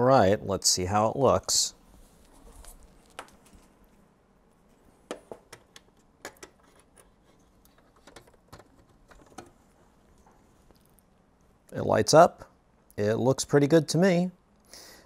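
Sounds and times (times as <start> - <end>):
clicks and light taps: 5.1 - 11.8.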